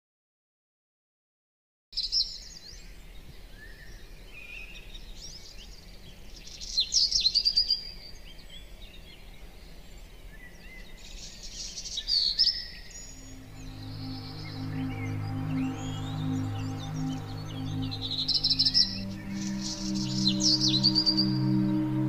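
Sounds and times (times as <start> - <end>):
birds chirping and singing: 12.0 - 22.0.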